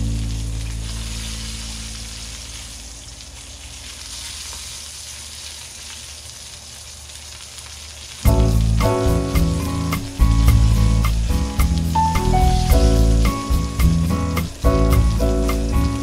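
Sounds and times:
meat sizzling in a pan: 0.0 - 16.0
background music: 8.3 - 16.0.

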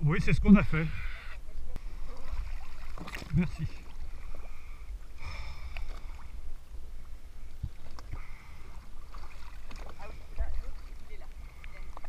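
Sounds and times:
water sloshing against boat hull: 1.2 - 12.0
short splashes: 1.8 - 4.6, 7.8 - 12.0.

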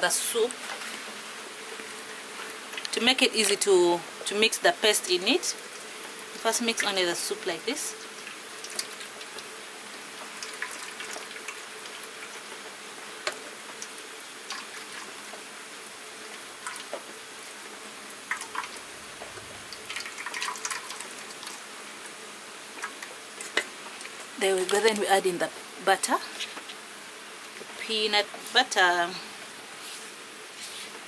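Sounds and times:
soup trickling into metal pan: 10.2 - 12.5, 13.8 - 15.3, 16.6 - 16.9, 18.2 - 18.9, 19.6 - 21.7.

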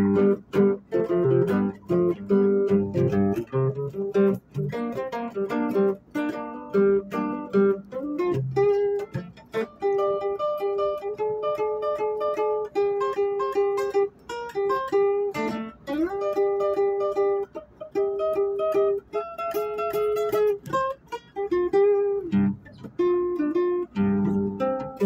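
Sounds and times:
plucked string melody: 0.0 - 25.0.

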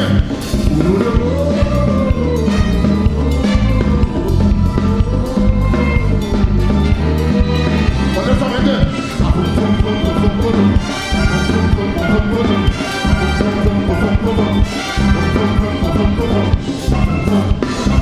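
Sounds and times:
bass and drums: 0.0 - 18.0
horn section: 0.0 - 18.0.

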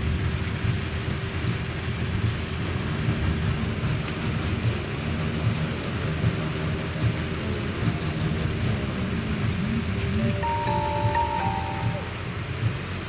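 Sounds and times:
tyres hissing on wet road: 0.0 - 10.0
car engine rumble: 0.0 - 10.2.

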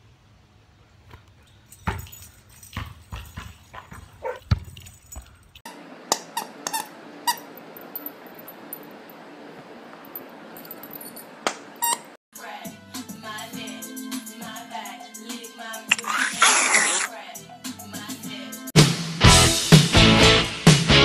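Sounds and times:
dog whining: 4.2 - 4.4.

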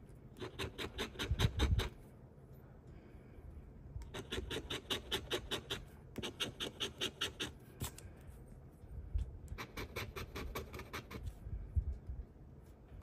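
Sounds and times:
coin scratching lottery ticket: 4.1 - 7.5.

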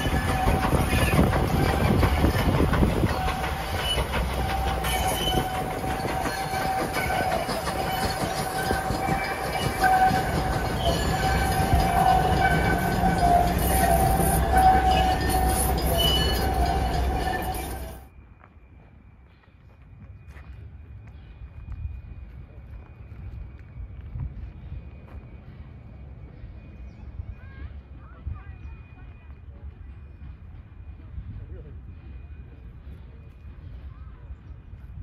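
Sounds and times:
high squeaks: 0.0 - 18.0
thin wheel squeal: 0.0 - 18.0
train wheels rumbling on rails: 0.0 - 35.0.

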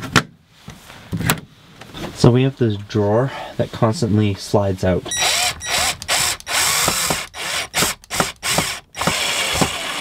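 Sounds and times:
cordless drill driving screws: 5.1 - 10.0.

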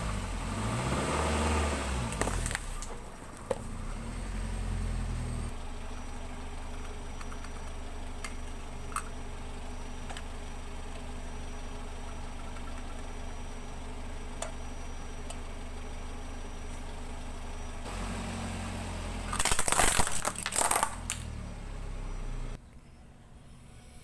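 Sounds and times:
car engine idling: 0.0 - 23.5
plastic toy cracking under tyre: 19.3 - 21.3.

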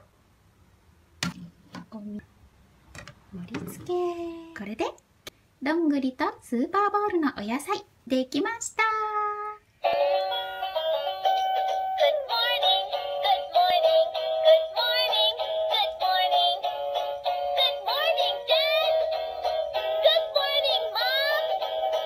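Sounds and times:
children's song over backing music: 11.8 - 22.0.

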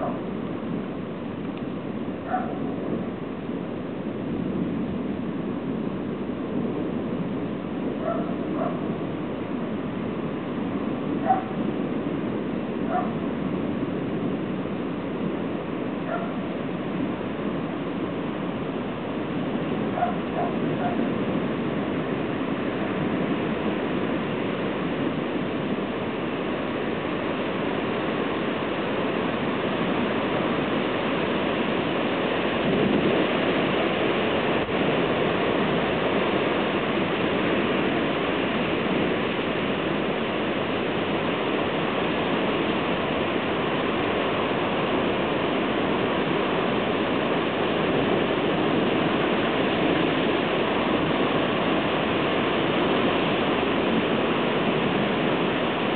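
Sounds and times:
heavy rain hissing: 13.3 - 55.9.

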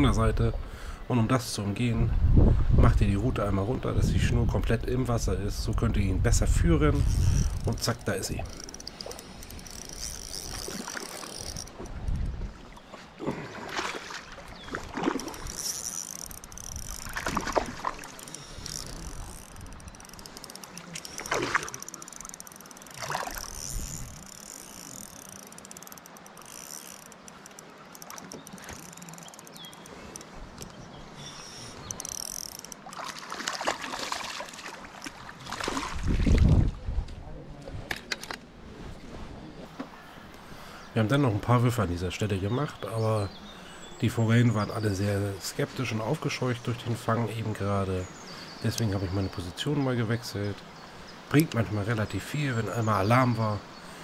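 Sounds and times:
wind noise on microphone: 2.0 - 8.6, 11.4 - 12.6, 23.4 - 24.3, 35.6 - 38.0
water splashing: 6.5 - 36.8.

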